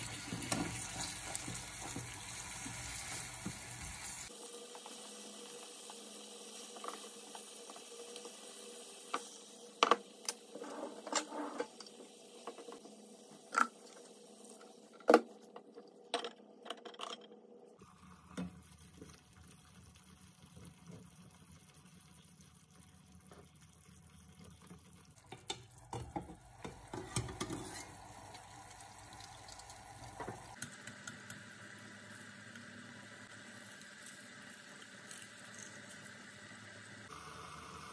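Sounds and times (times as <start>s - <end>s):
food sizzling in sauce: 0.0s - 10.7s, 26.8s - 37.9s.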